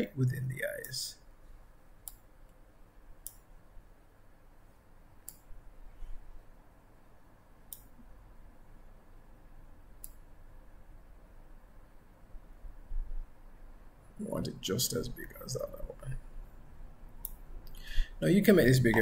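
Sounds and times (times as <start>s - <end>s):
low steady hum: 0.0s - 19.0s
computer mouse clicking: 2.0s - 2.6s, 3.2s - 3.5s, 5.2s - 5.5s, 7.7s - 8.0s, 10.0s - 10.2s, 17.2s - 17.8s.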